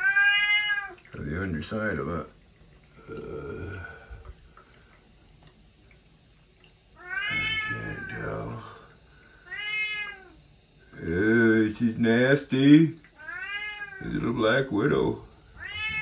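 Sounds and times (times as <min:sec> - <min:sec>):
cat meowing: 0:00.0 - 0:01.0, 0:07.0 - 0:08.2, 0:09.5 - 0:10.4, 0:13.2 - 0:14.1, 0:15.6 - 0:16.0.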